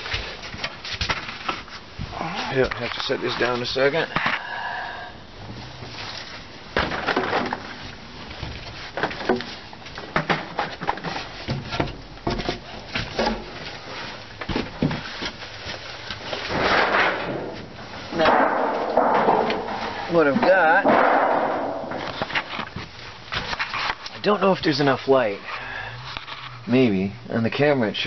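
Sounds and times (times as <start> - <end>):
rustle: 0.0 - 27.2
objects knocking against wood: 18.2 - 22.4.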